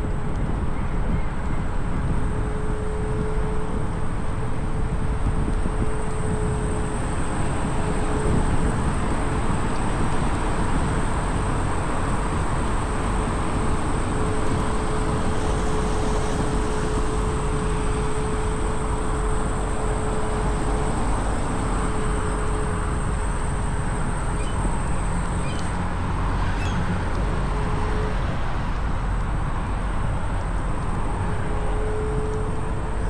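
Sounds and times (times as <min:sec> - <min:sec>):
road rumble: 0:00.0 - 0:33.0
wind on microphone: 0:00.0 - 0:33.0
faint bird chirps: 0:24.4 - 0:24.7, 0:25.4 - 0:25.7, 0:26.5 - 0:26.8.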